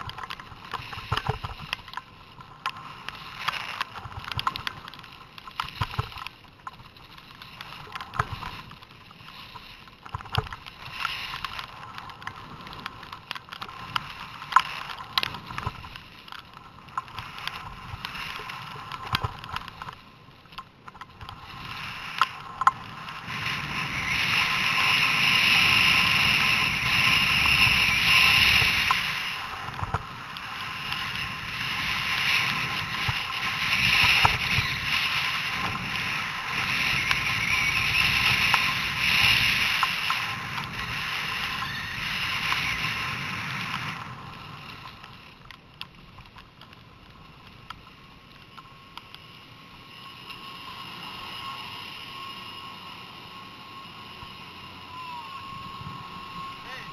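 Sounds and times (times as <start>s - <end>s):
skis scraping on packed snow: 0.0s - 56.9s
wind rushing over microphone: 21.2s - 45.2s, 49.9s - 56.9s.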